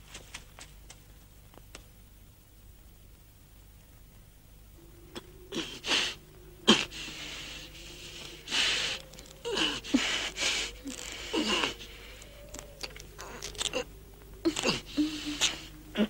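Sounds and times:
man breathing hard through nose: 4.9 - 16.0.

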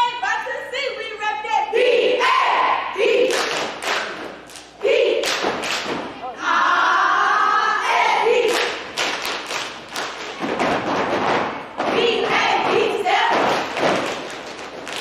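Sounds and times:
rhythmic stomps and claps: 3.1 - 6.2, 8.3 - 15.0.

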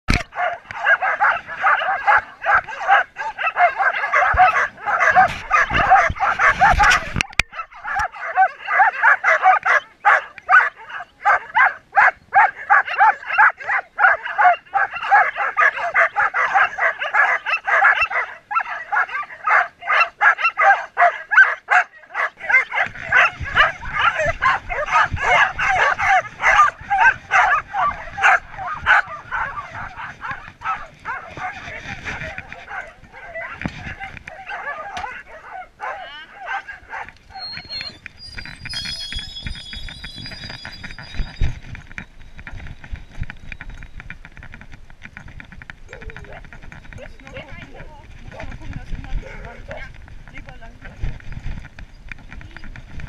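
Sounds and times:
many dogs barking: 0.1 - 37.9.

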